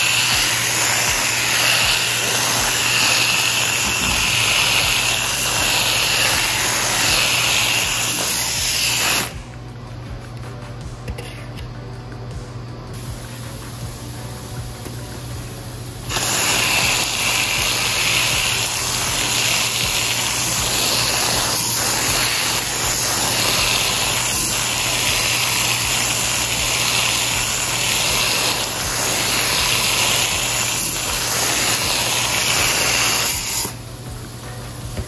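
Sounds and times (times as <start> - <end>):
water jet spraying: 0.0 - 9.4, 16.1 - 33.8.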